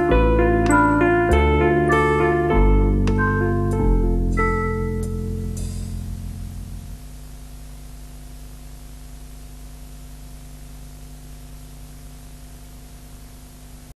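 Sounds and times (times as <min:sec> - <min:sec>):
organ music: 0:00.0 - 0:06.7
low electrical hum: 0:00.0 - 0:13.9
steady hiss: 0:00.0 - 0:13.9.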